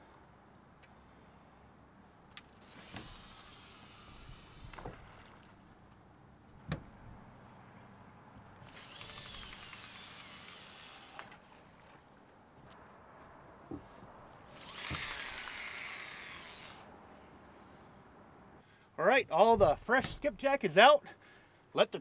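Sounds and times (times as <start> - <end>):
fishing reel spool whirring: 2.6 - 5.3, 8.7 - 11.9, 14.5 - 16.9
reel and rod clicks: 14.6 - 16.8.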